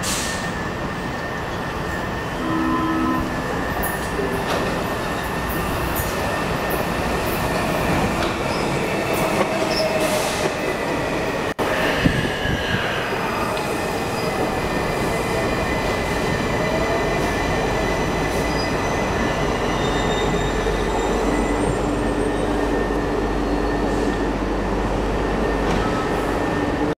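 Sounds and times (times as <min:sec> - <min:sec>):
train rolling rumble: 0:00.0 - 0:26.9
train whine sliding in pitch: 0:00.0 - 0:26.9
high wheel squeal: 0:18.3 - 0:24.3.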